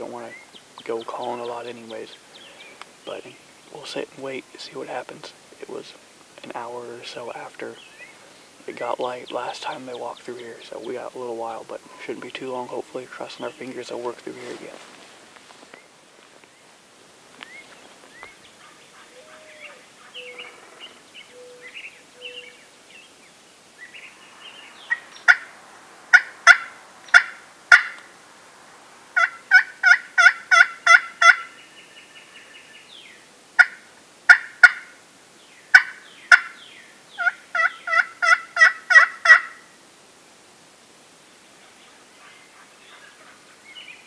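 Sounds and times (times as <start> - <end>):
faint bird chirps: 17.4 - 25.5
turkey box call yelps: 24.9 - 25.5, 26.1 - 28.1, 29.2 - 31.6, 33.6 - 35.0, 35.7 - 36.6, 37.2 - 39.7.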